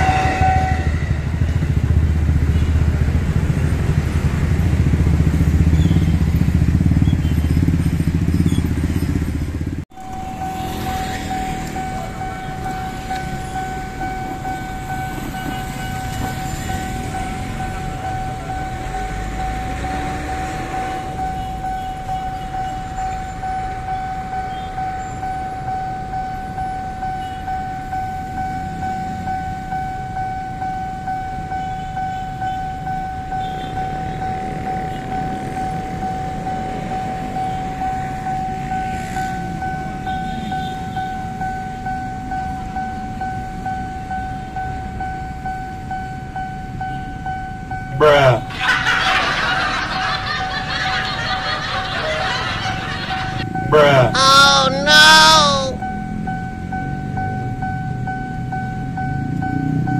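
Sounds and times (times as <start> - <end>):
loud low engine rumble: 0.0 - 23.0, 48.5 - 55.6
buses and motorcycles idling: 0.7 - 30.6, 48.0 - 59.2
level crossing alarm tone: 9.9 - 22.8, 50.3 - 56.2.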